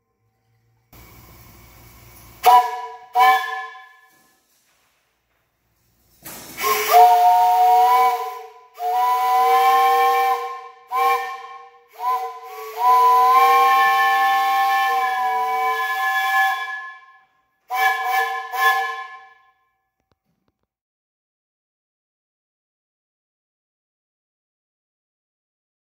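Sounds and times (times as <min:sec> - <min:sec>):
steam whistle chord blasts: 0:02.4 - 0:04.3, 0:06.6 - 0:19.6
steam hiss: 0:06.0 - 0:11.2, 0:11.9 - 0:16.6.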